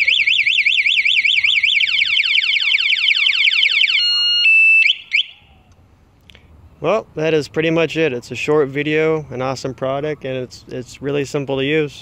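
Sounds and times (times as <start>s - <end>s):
motorcycle alarm siren: 0.0s - 5.7s.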